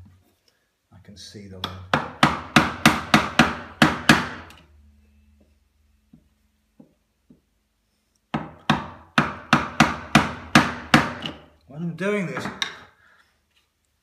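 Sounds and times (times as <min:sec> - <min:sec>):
mallet tapping chisel into wood: 0:01.6 - 0:04.6, 0:08.3 - 0:11.4.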